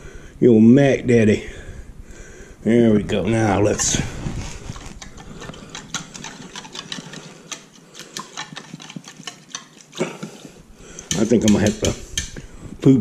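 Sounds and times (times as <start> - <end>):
wire whisk clicking against bowl: 5.0 - 9.9, 11.0 - 12.4.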